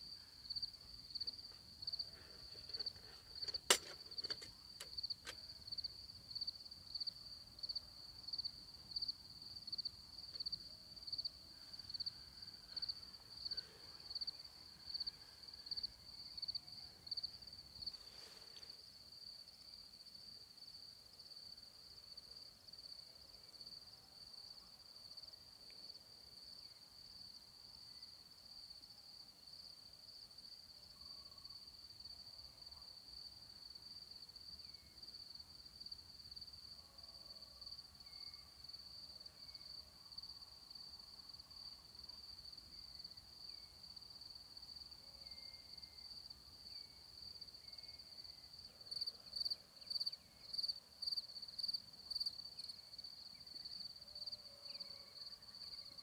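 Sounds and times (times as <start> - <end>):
loud pulsing cricket chirp: 4.9 - 18.0, 37.6 - 56.0.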